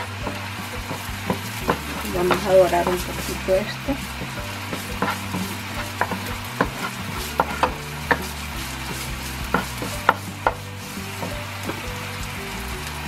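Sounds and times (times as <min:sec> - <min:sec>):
wooden spoon scraping a pan: 0:00.0 - 0:13.0
zest sizzling in oil: 0:00.0 - 0:13.0.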